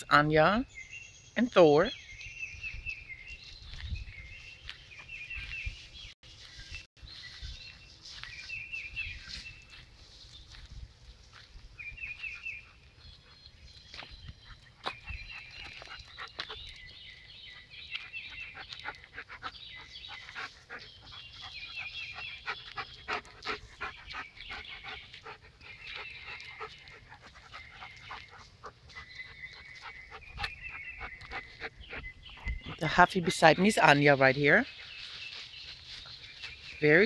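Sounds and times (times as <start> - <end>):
birds chirping: 0.0 - 37.0
dogs panting: 14.3 - 16.9, 17.5 - 36.5.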